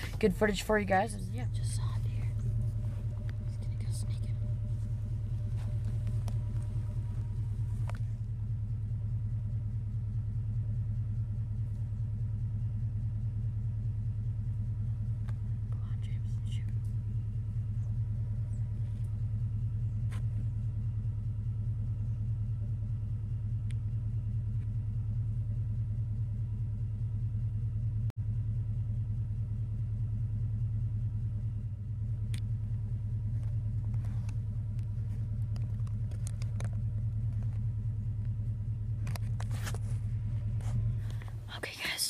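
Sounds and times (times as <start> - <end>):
steady low rumble: 0.0 - 42.0.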